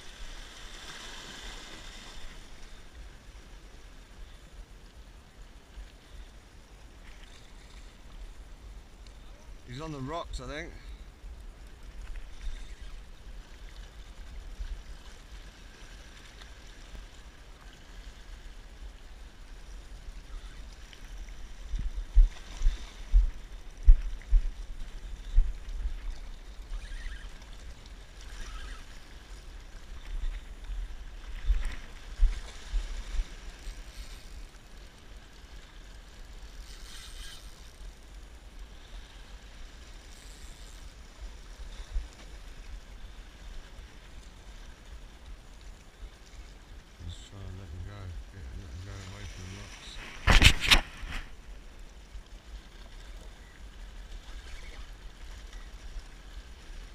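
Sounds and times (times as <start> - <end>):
sea water lapping against rocks: 48.8 - 51.6.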